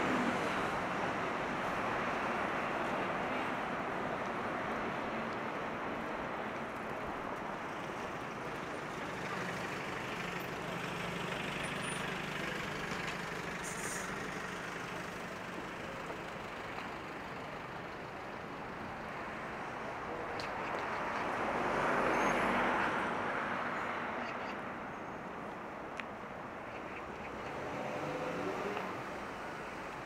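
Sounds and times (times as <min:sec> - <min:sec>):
city road traffic: 0:00.0 - 0:30.0
engine hum: 0:26.4 - 0:30.0.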